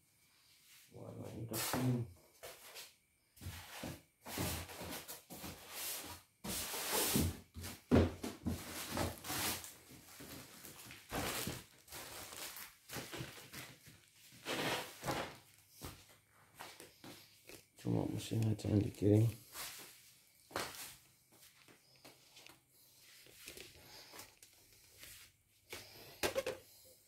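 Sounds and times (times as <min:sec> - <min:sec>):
packaging rustling: 0:09.6 - 0:14.0
styrofoam scraping in box: 0:14.4 - 0:15.1.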